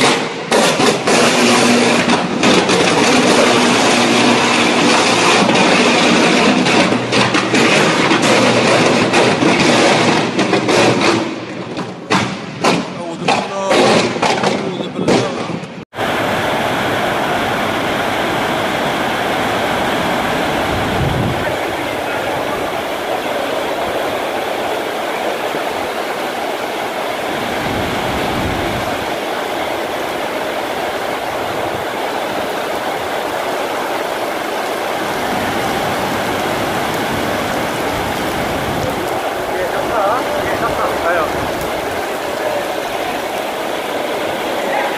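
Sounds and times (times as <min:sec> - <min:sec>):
heavy rain hiss: 0:00.0 - 0:10.9, 0:15.9 - 0:44.9
low rumbles: 0:27.4 - 0:44.7.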